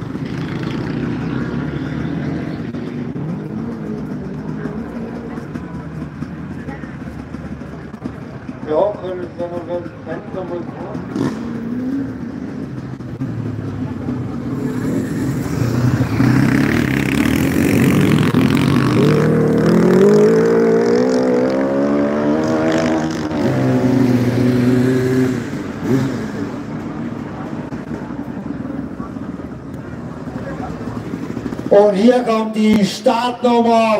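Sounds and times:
motorcycle engine revving past: 10.8 - 28.0.

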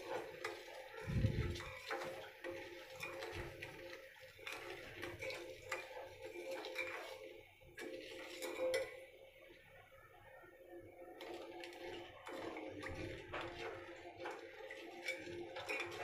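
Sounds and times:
spoon scraping and clinking in pot: 1.4 - 9.0.

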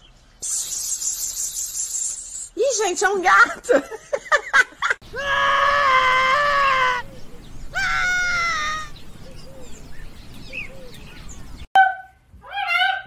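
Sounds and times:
wild cat screaming: 5.1 - 7.1, 7.7 - 8.9.

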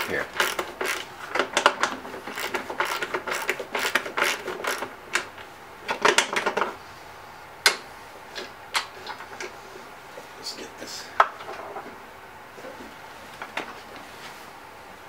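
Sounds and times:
hand ratchet clicking: 0.0 - 6.8.

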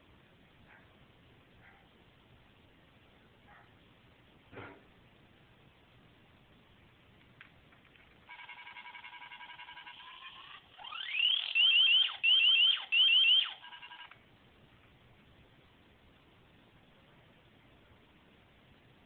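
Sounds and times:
electronic chirps: 8.3 - 14.2
electronic tone: 8.3 - 14.2.

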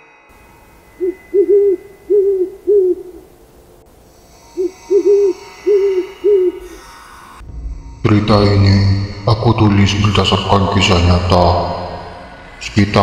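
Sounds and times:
owl hooting: 0.9 - 3.5, 4.4 - 7.0.

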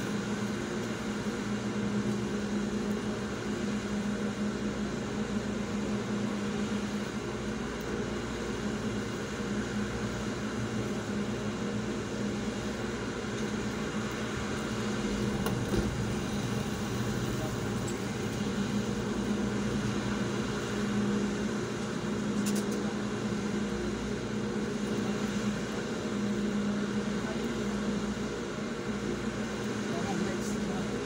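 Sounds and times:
air-conditioning fan rushing: 0.0 - 31.0
vehicle engine humming: 9.9 - 31.0.

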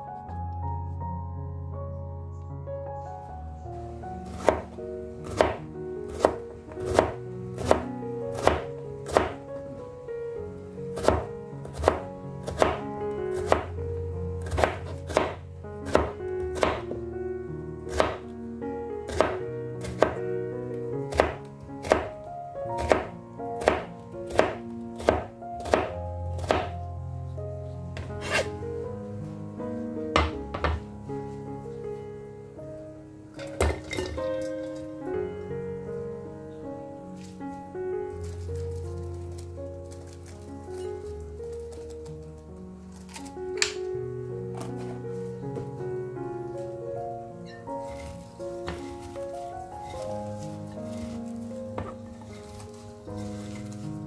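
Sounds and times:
soft background music: 0.0 - 54.0
knife chopping on cutting board: 4.3 - 4.7, 5.3 - 7.8, 8.4 - 9.4, 11.0 - 12.8, 13.4 - 13.7, 14.4 - 17.0, 17.9 - 18.2, 19.1 - 20.2, 21.1 - 22.1, 22.8 - 26.7, 28.2 - 28.5, 48.7 - 49.1.

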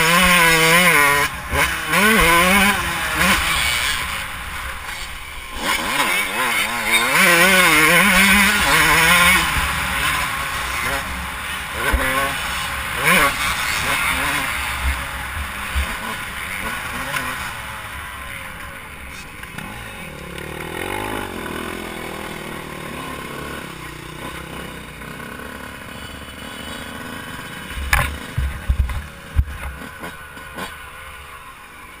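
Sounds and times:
dirt bike engine running: 0.0 - 32.0
sharp knocks: 27.8 - 29.8.

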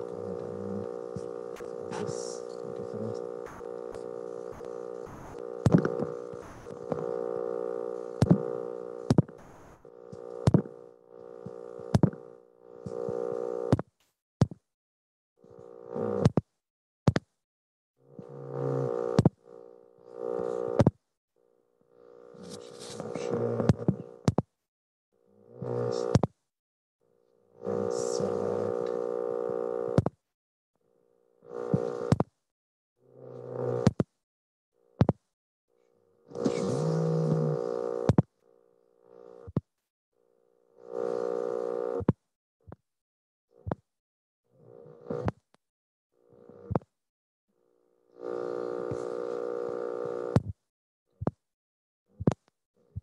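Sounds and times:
electrical buzz: 0.0 - 13.7, 18.2 - 20.8, 36.3 - 38.1, 40.8 - 42.0, 48.2 - 50.4.

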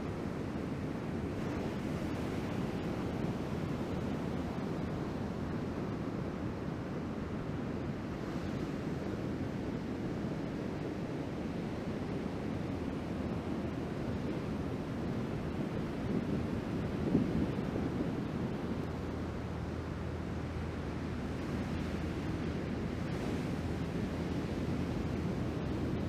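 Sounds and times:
waves breaking: 15.3 - 26.0.

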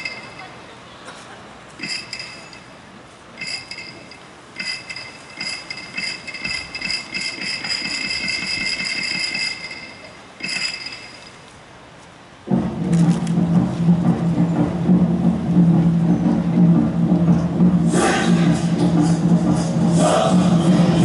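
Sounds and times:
wooden clappers clacking: 1.8 - 2.7, 3.4 - 11.4.

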